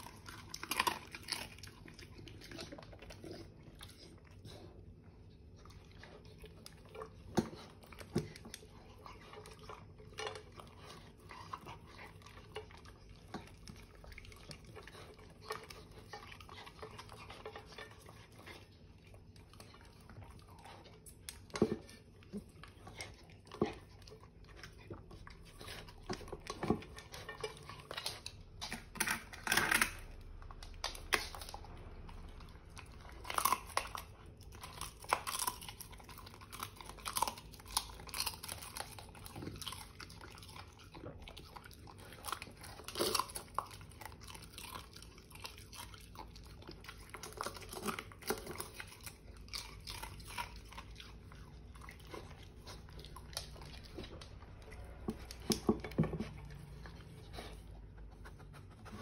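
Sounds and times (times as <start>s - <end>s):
dog chewing and lapping: 0.0s - 59.0s.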